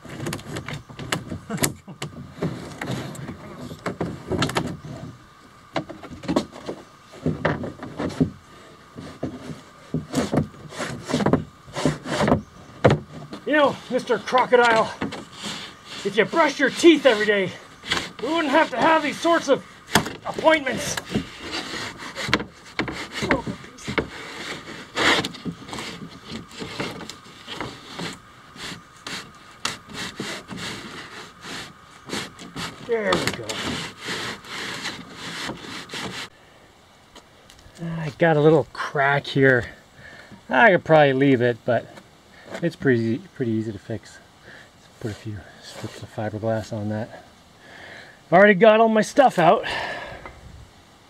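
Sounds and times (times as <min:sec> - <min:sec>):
fiberglass cracking and creaking: 0:00.0 - 0:08.4, 0:09.2 - 0:36.3.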